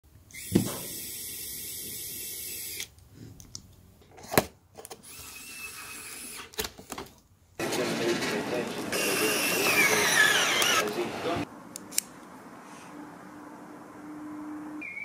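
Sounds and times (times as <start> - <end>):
electric screwdriver whining: 9.0 - 10.9.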